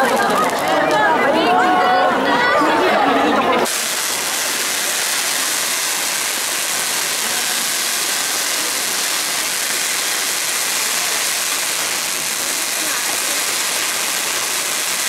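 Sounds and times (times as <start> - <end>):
fountain firework hissing: 3.6 - 15.0.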